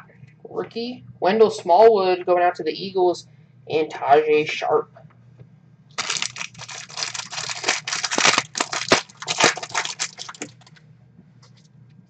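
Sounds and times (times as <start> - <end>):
plastic wrapper crinkling: 6.0 - 10.8.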